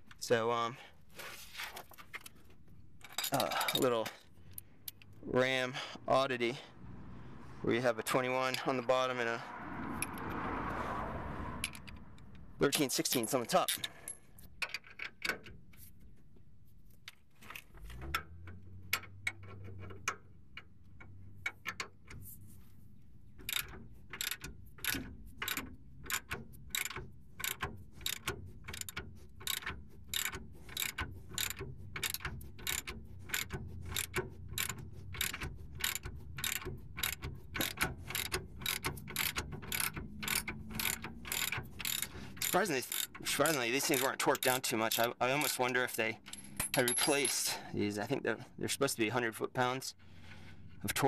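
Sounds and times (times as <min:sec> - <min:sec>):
hand ratchet clicking: 0:23.4 - 0:46.9.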